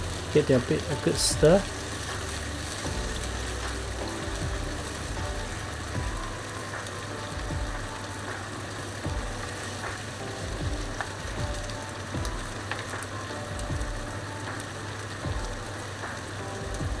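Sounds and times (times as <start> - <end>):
food sizzling in wok: 0.0 - 17.0
soft low thumps: 2.9 - 6.4, 7.3 - 8.0, 9.1 - 9.5, 10.4 - 12.6, 13.6 - 14.2, 16.7 - 17.0.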